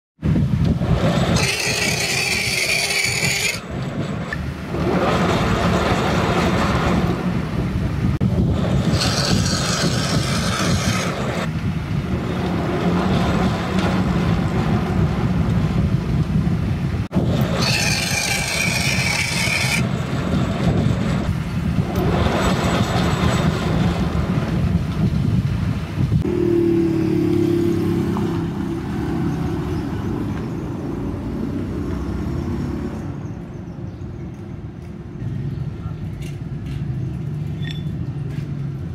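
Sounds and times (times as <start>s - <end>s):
high-pitched scraping of cutting tool: 1.1s - 4.4s, 8.7s - 11.5s, 17.4s - 19.9s
metal lathe humming: 1.2s - 4.4s.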